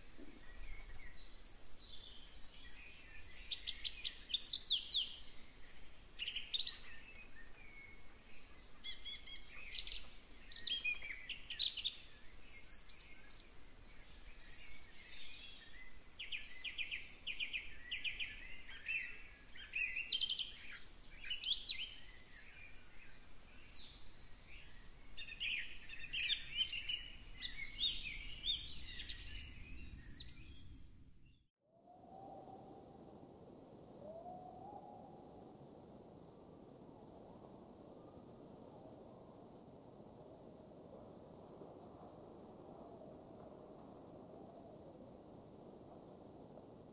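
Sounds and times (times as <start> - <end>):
songbirds singing: 0.0 - 32.9.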